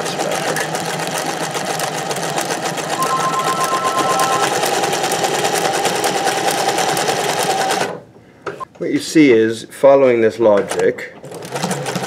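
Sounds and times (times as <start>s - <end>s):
sewing machine stitching: 11.2s - 12.0s.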